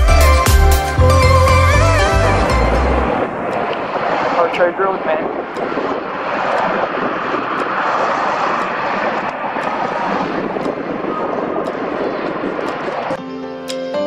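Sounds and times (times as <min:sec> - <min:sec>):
background music: 0:00.0 - 0:03.3, 0:13.2 - 0:14.0
rumble of passing cars: 0:01.0 - 0:13.2.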